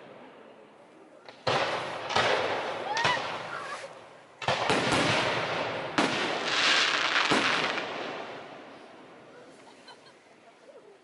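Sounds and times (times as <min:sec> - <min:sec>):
fireworks bangs: 0:01.2 - 0:09.6
fireworks hissing crackle: 0:01.6 - 0:09.9.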